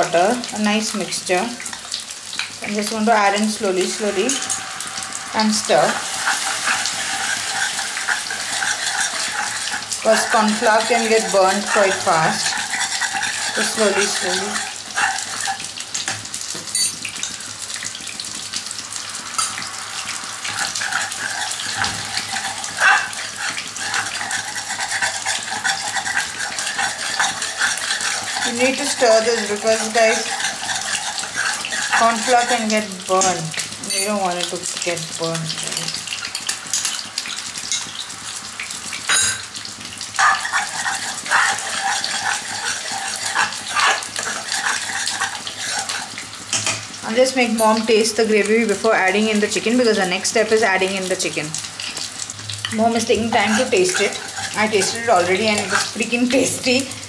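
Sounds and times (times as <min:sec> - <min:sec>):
sauce sizzling and bubbling: 0:00.0 - 0:57.0
spoon scraping and tapping pan: 0:04.3 - 0:04.7, 0:05.8 - 0:17.4, 0:19.4 - 0:19.6, 0:20.5 - 0:34.4, 0:35.6 - 0:38.0, 0:39.1 - 0:46.9, 0:47.5 - 0:48.0, 0:51.8 - 0:56.8.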